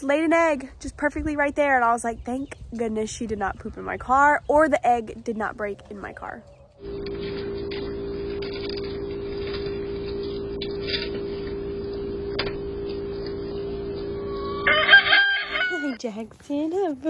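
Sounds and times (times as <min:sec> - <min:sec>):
steady electrical hum: 0:04.9 - 0:15.7
rooster crowing: 0:14.2 - 0:16.0.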